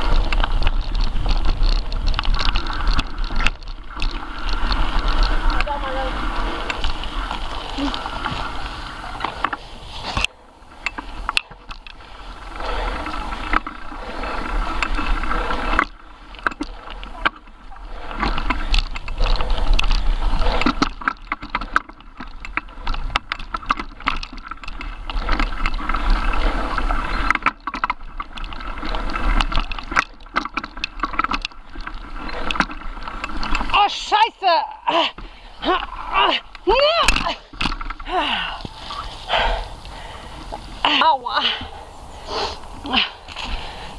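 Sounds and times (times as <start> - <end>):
wind rumble on microphone: 0.0 - 33.8
bike rattling over bumps: 0.0 - 43.9
tyres rolling over dirt and leaves: 0.0 - 43.9.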